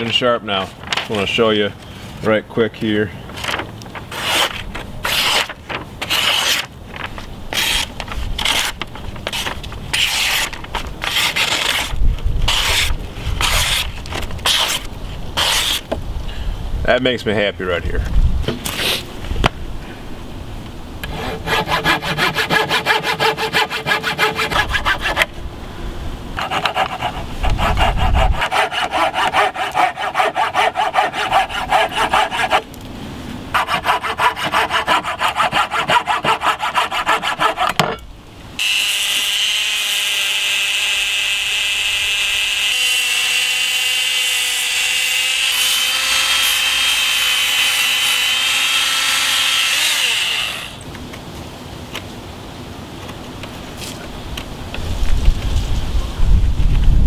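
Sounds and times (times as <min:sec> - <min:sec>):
saw cutting wood: 0:04.1 - 0:06.7, 0:07.5 - 0:15.9, 0:21.0 - 0:25.4, 0:26.4 - 0:32.7, 0:33.5 - 0:37.8, 0:38.6 - 0:50.8
small power tool whine: 0:38.6 - 0:50.8.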